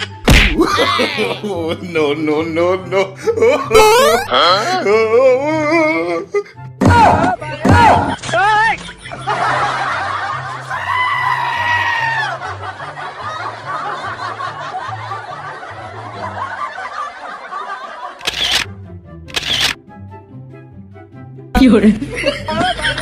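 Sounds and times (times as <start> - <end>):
laughter: 0.6 - 2.0, 8.6 - 11.0, 12.1 - 18.5, 22.0 - 23.0.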